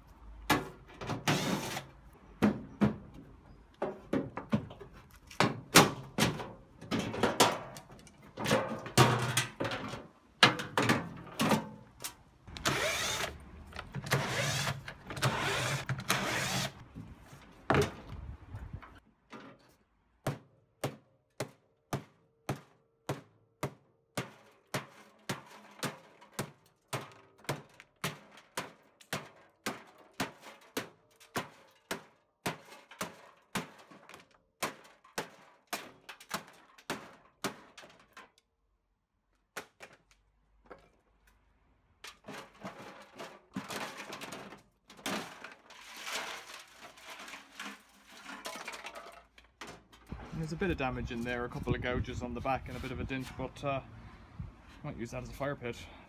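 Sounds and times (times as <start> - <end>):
metal panel clattering and scraping: 3.8 - 11.9, 42.0 - 50.6.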